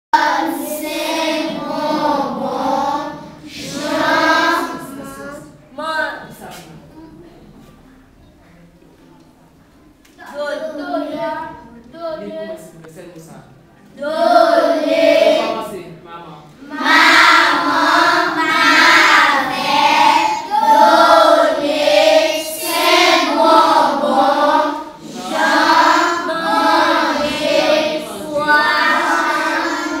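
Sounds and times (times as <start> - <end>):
children chanting together: 0.2 - 5.6, 14.0 - 15.7, 16.6 - 30.0.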